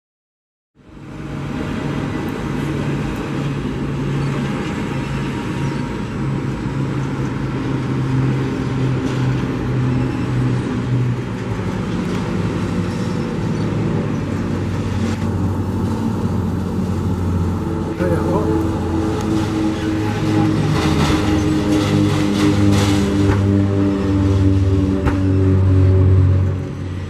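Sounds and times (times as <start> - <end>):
turboprop aircraft flying over: 0.8 - 27.0.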